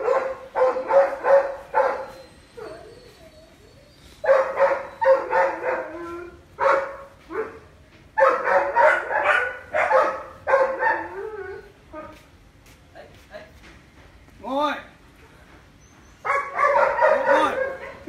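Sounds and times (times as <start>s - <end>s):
dog barking: 0.0s - 2.8s, 4.2s - 6.0s, 6.6s - 7.6s, 8.2s - 11.2s, 16.3s - 18.0s.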